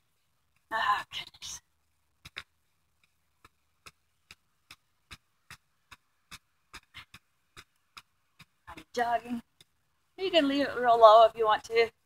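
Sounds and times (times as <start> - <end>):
footsteps jogging in sandals: 2.0 - 9.0.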